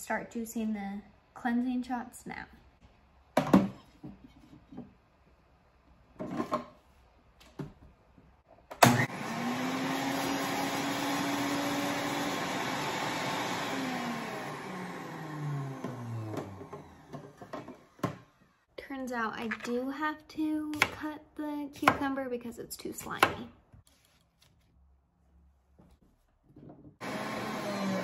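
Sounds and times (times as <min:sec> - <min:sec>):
juicer motor whine: 0:08.7 - 0:17.8, 0:27.0 - 0:28.0.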